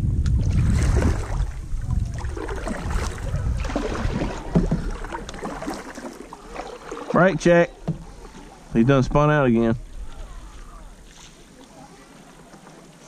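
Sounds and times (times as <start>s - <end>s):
wind rumble on microphone: 0.0s - 5.4s
water against hull: 0.0s - 13.0s
paddle strokes in water: 0.4s - 9.0s, 9.8s - 13.0s.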